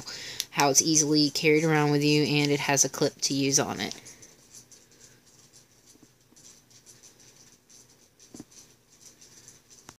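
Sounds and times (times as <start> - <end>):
metal flashlight rustling in hand: 3.4 - 10.0.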